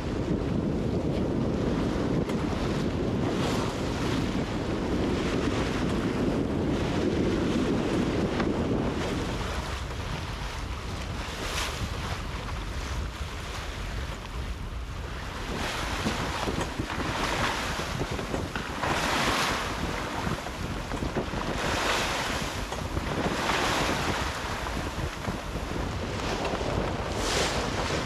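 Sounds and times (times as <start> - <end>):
wind buffeting microphone: 0.0 - 28.0
water rushing past hull: 1.7 - 28.0.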